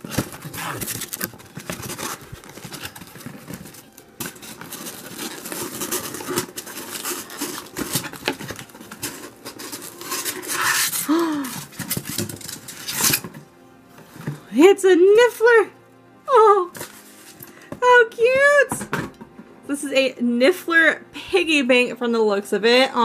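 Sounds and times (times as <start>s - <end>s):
cardboard and foam rustling: 0.0s - 14.6s, 16.6s - 17.8s.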